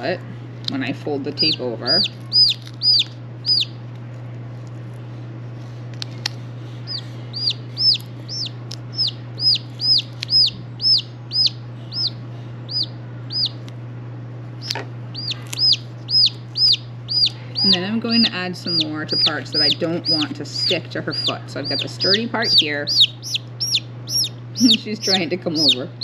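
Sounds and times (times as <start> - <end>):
steady low hum: 0.0 - 26.0
chick peeping loudly: 1.4 - 3.8, 6.8 - 13.6, 14.6 - 26.0.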